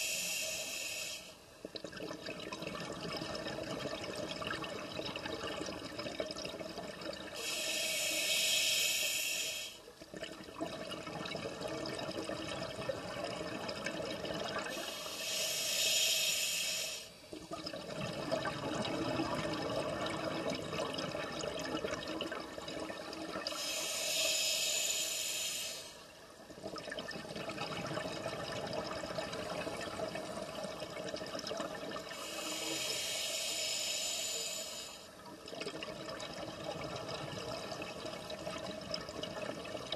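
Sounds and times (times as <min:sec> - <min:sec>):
diver breathing through regulator: 0:00.0 - 0:01.4, 0:07.4 - 0:09.8, 0:14.7 - 0:17.2, 0:23.5 - 0:26.0, 0:32.1 - 0:35.1
underwater water noise: 0:00.0 - 0:39.9.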